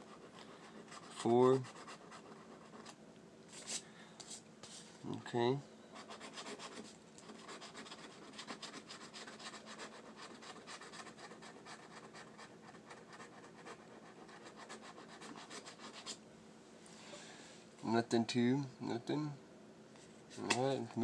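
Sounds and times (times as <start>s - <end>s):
scratching lottery ticket: 0.0s - 3.0s, 6.0s - 16.2s.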